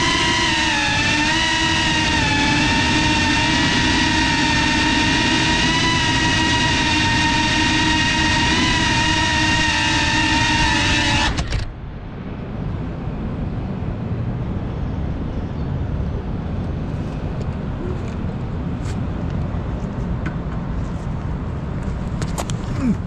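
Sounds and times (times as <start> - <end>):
drone motors whining: 0.0 - 11.9
low outdoor rumble: 0.0 - 23.0.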